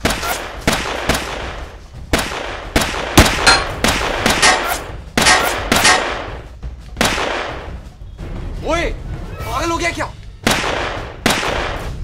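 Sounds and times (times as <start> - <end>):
pistol gunshots: 0.0 - 6.4, 7.0 - 7.7, 10.4 - 12.0.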